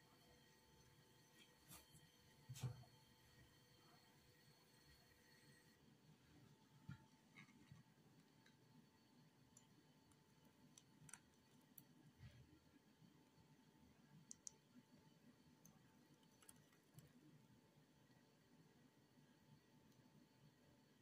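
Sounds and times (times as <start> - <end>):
faint clicks: 14.2 - 14.7.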